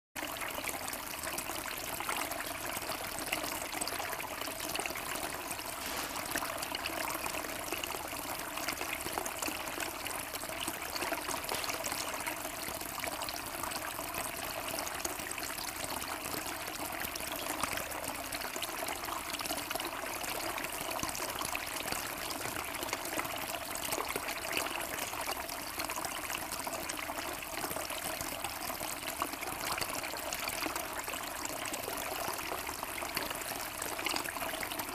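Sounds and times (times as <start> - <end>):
fountain water trickling: 0.2 - 34.9.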